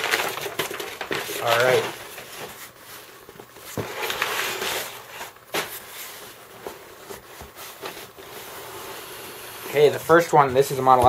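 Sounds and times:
hands rustling packing paper: 0.0s - 8.2s.

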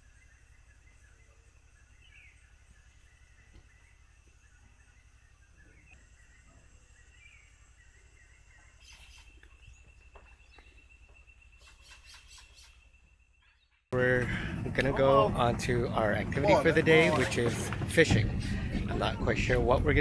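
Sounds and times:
bird chirps and calls: 0.0s - 13.9s.

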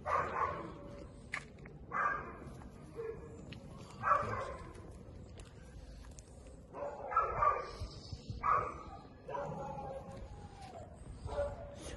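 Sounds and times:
dog barking: 0.0s - 0.8s, 1.9s - 3.3s, 4.0s - 4.7s, 6.7s - 7.8s, 8.4s - 10.1s, 11.2s - 11.8s.

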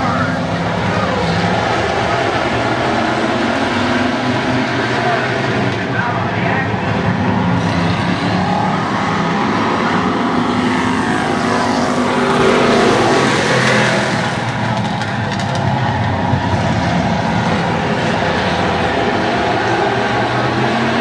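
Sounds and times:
race car engines passing: 0.0s - 21.0s.

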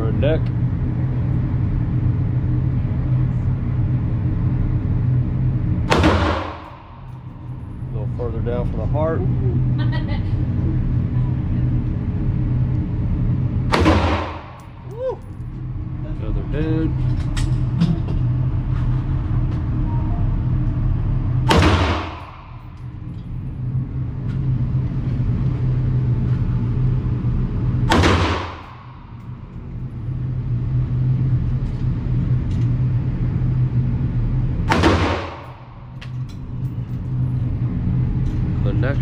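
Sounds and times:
steady low hum: 0.0s - 39.0s
rifle shots ringing indoors: 5.9s - 7.3s, 13.7s - 14.7s, 21.4s - 22.9s, 27.9s - 29.3s, 34.7s - 35.7s.

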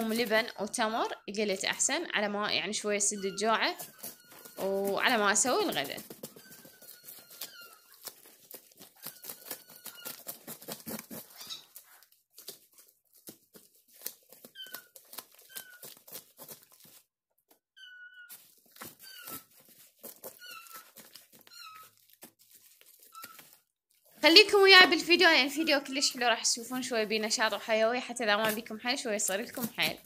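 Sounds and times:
short high squeaks: 3.1s - 8.3s, 9.0s - 12.0s, 17.7s - 19.6s, 23.0s - 23.6s
knife scraping fish scales: 3.2s - 12.0s.

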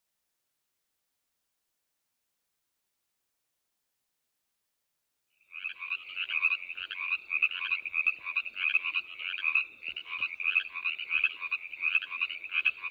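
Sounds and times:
frogs croaking: 5.4s - 12.9s.

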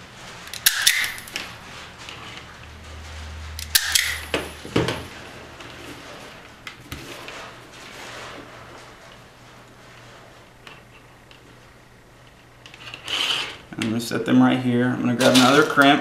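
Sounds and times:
wire cutters snipping: 0.5s - 1.5s, 3.6s - 4.4s.

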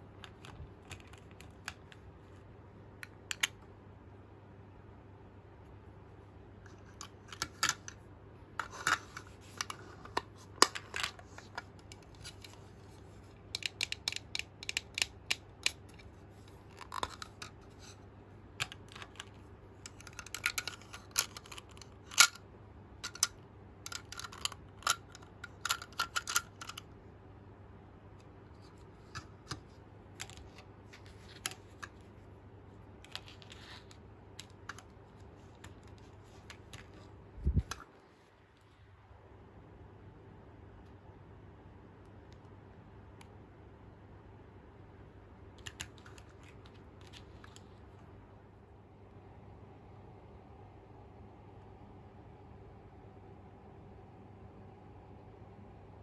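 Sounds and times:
faint steady hum: 0.0s - 56.0s
plastic toy pieces clicking: 13.5s - 15.9s, 18.6s - 22.4s, 23.0s - 26.8s.

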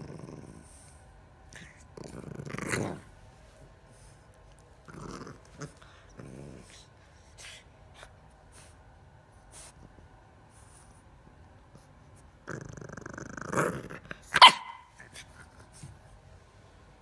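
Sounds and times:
puppy play-growling and grunting: 0.0s - 8.2s, 11.0s - 16.2s.

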